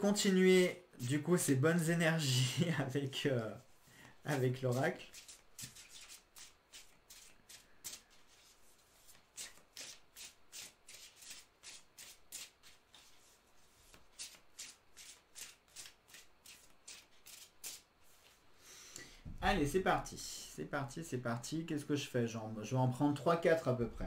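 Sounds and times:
cards being shuffled: 4.3s - 18.4s.

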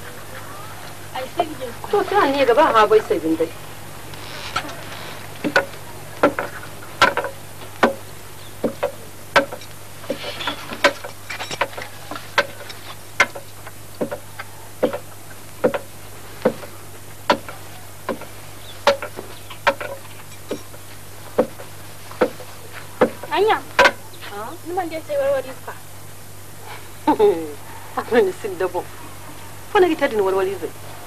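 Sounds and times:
low steady hum: 0.0s - 31.0s
sharp knocks: 5.4s - 20.8s, 21.4s - 24.0s.

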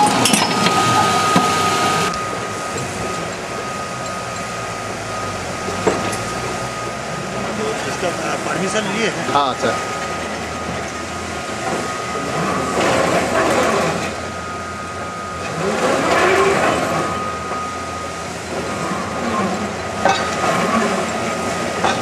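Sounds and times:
metal clank: 0.0s - 0.8s, 20.0s - 20.8s, 21.8s - 22.0s
heavy machine whining: 0.0s - 22.0s.

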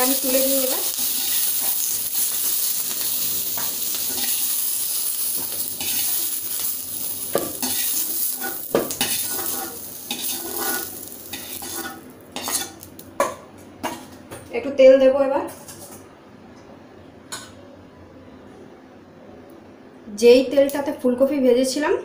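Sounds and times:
vegetables sizzling in hot oil: 0.0s - 13.1s
metal spatula scraping: 3.6s - 6.7s, 7.4s - 12.8s.

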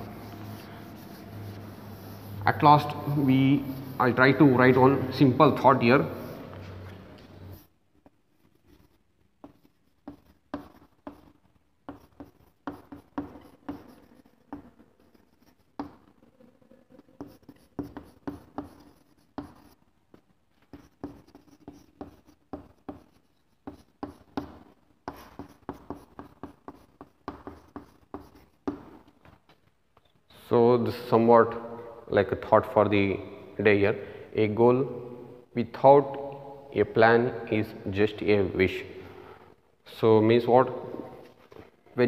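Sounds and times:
chalk writing on blackboard: 0.0s - 5.1s, 6.0s - 7.8s, 8.4s - 16.2s, 16.9s - 19.8s, 20.6s - 29.2s.

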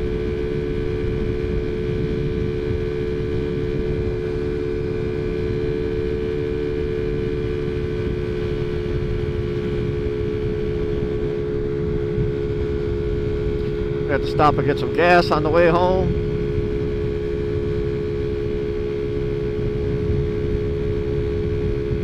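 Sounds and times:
scooter engine droning: 0.0s - 22.0s
wind rumble on microphone: 0.0s - 22.0s.

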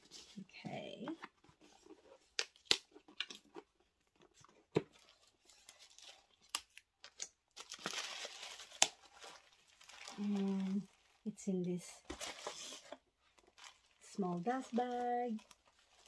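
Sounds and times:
tissue paper rustling: 7.6s - 11.2s, 12.0s - 16.0s.

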